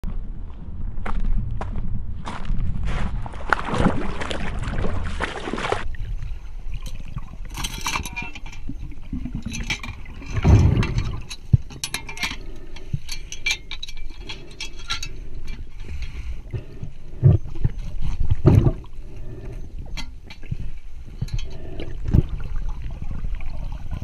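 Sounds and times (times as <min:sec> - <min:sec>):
swim fin splashing: 0:03.3 - 0:05.9
underwater clicks and ticks: 0:06.0 - 0:24.0
low underwater thumps: 0:09.1 - 0:11.7, 0:16.5 - 0:18.9.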